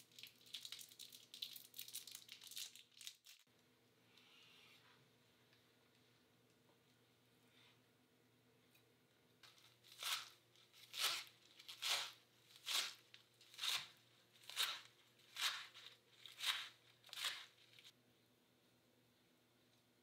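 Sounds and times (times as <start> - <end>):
knife slicing lettuce on board: 9.9 - 17.9.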